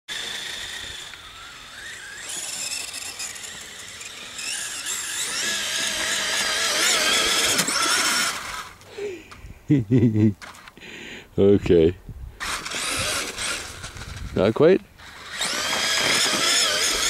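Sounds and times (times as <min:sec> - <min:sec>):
toy truck electric motor whining: 0:00.1 - 0:08.8, 0:12.4 - 0:14.3, 0:15.0 - 0:17.0.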